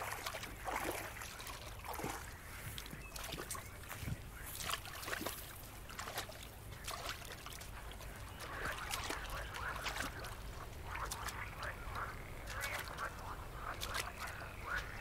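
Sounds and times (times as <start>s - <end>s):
boots wading through mud: 0.0s - 15.0s.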